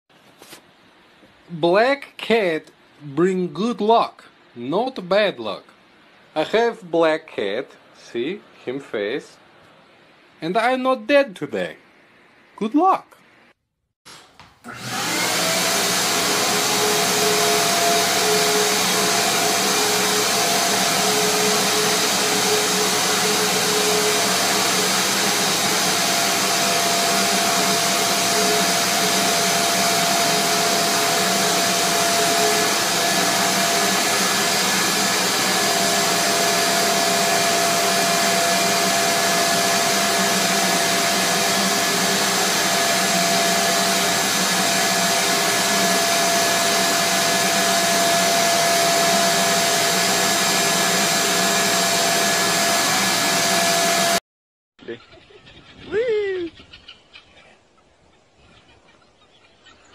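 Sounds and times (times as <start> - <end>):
shop vacuum motor whine: 14.1 - 54.2.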